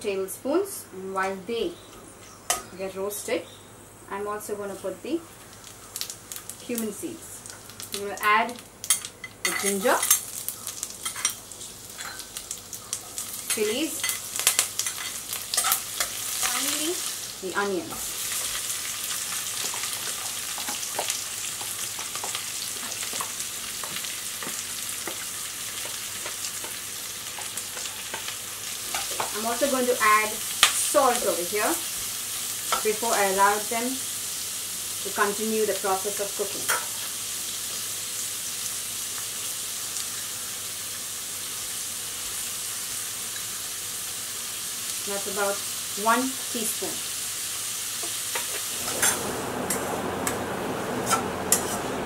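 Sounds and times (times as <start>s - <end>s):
onions sizzling in oil: 2.5s - 52.0s.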